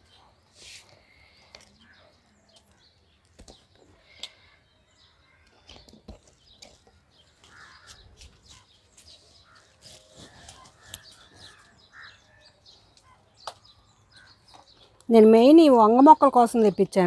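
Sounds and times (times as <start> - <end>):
crows cawing: 7.4 - 8.1, 9.4 - 12.6.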